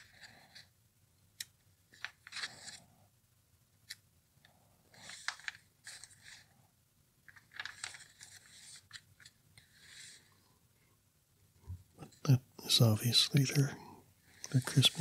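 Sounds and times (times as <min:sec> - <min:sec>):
paper pages rustling: 0:01.9 - 0:02.9, 0:04.9 - 0:06.5, 0:07.2 - 0:10.3.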